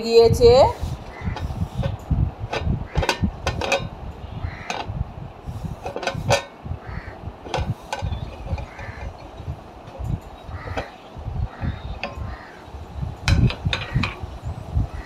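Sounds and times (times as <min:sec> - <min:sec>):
low rumble: 0:00.7 - 0:15.0
crows cawing: 0:01.0 - 0:01.6, 0:02.8 - 0:03.3, 0:04.2 - 0:04.9, 0:06.8 - 0:07.3, 0:08.1 - 0:09.4, 0:10.4 - 0:12.8, 0:13.8 - 0:14.2.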